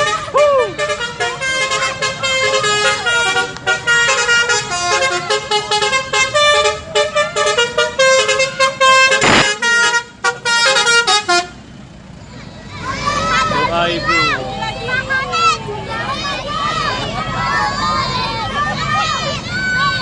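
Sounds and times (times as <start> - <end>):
musical bus horn playing a tune: 0.0 - 11.8
short burst of noise: 9.2 - 9.6.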